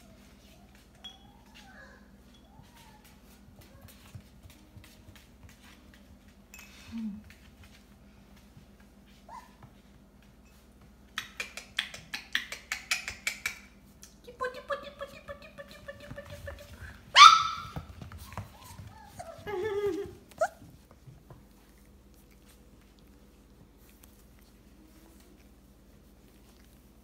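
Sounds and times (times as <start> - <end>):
puppy yelp: 9.3 - 9.6, 17.1 - 20.8
puppies whining: 17.2 - 21.0.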